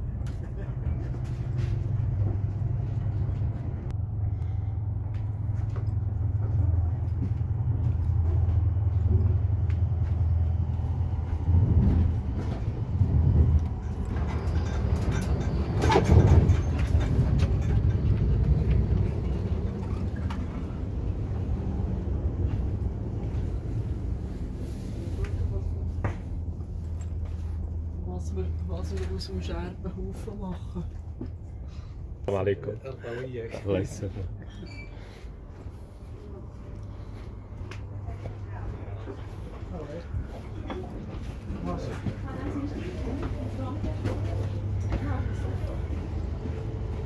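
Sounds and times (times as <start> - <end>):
train rumble inside carriage: 0.0 - 47.0.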